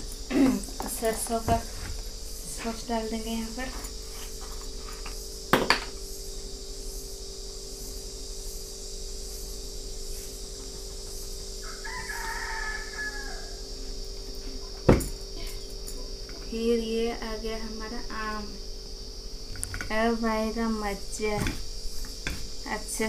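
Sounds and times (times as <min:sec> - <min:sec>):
background hum: 0:00.0 - 0:23.0
rooster crowing: 0:11.6 - 0:13.9
bottle knocking on wooden table: 0:14.9 - 0:15.1.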